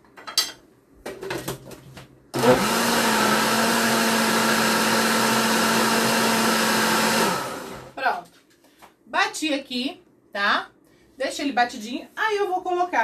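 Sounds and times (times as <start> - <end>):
blender running: 2.4 - 8.0.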